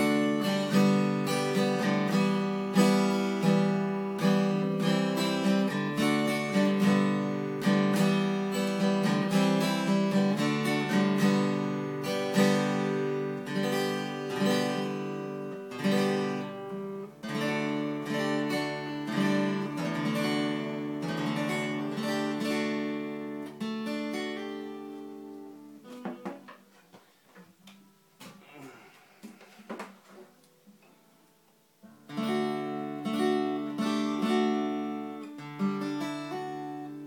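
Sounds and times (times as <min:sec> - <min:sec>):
acoustic guitar strumming: 0:00.0 - 0:28.6, 0:31.8 - 0:37.0.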